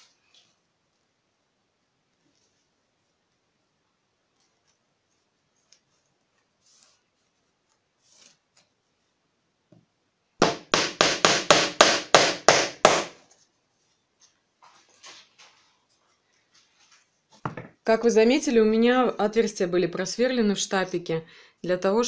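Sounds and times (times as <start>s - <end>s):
rustling and handling noises: 0.0s - 10.0s, 13.2s - 17.9s
hammer driving nails into wood: 10.4s - 13.2s.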